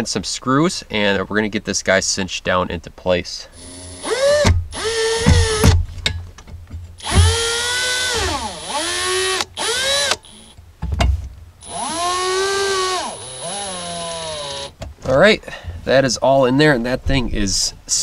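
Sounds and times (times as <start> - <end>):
cordless drill driving screws: 3.6 - 5.8, 7.0 - 10.6, 11.6 - 14.8.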